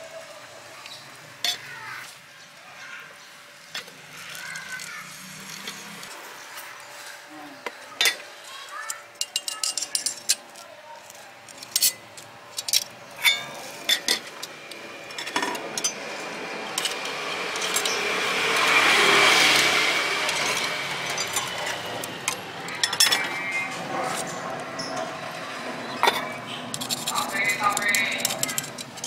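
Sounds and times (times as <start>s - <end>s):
metal tongs clinking on pans: 1.4s - 1.7s, 8.8s - 10.5s, 11.6s - 16.1s, 16.7s - 18.8s, 19.4s - 25.0s, 26.0s - 29.0s.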